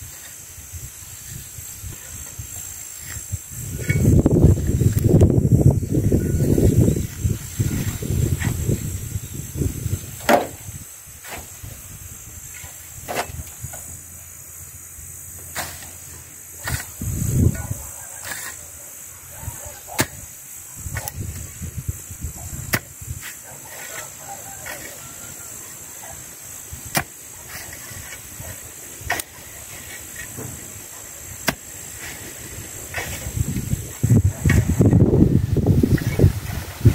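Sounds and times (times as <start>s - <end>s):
hoe scraping weeds: 0.0s - 14.1s, 15.3s - 36.9s
hoe striking ground: 3.0s - 4.3s, 10.2s - 11.6s, 12.5s - 13.9s, 15.4s - 18.6s, 19.8s - 21.5s, 22.6s - 25.1s, 26.6s - 35.0s
cut weeds rustling: 19.3s - 36.9s.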